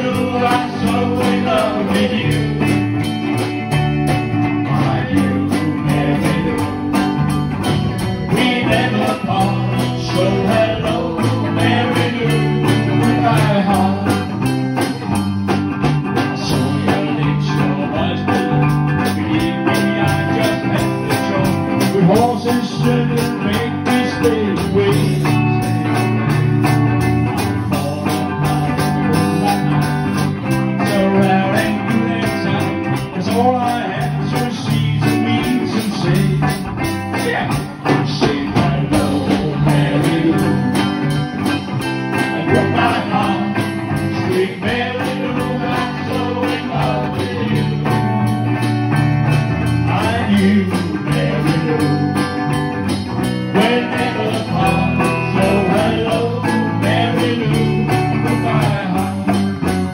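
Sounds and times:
person singing: 0:00.0 - 0:03.2, 0:04.6 - 0:07.2, 0:08.2 - 0:14.5, 0:16.3 - 0:25.7, 0:27.5 - 0:48.2, 0:49.7 - 0:52.4, 0:53.5 - 0:59.4
live rock and roll band: 0:00.0 - 0:59.9.

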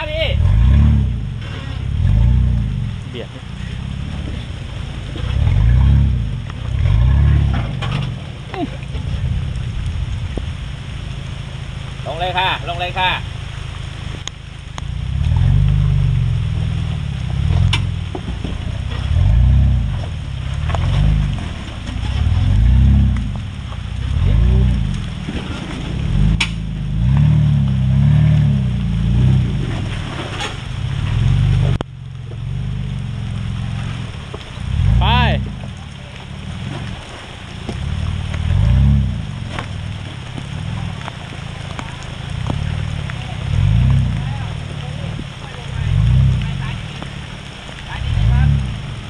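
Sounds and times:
engine revving: 0:00.0 - 0:09.9, 0:14.9 - 0:18.2, 0:18.8 - 0:31.8, 0:32.4 - 0:49.0.

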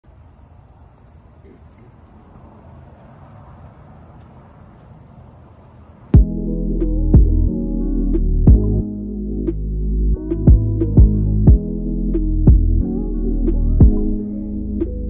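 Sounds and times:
crickets trilling: 0:00.0 - 0:06.2
music with deep bass hit: 0:06.2 - 0:15.0.

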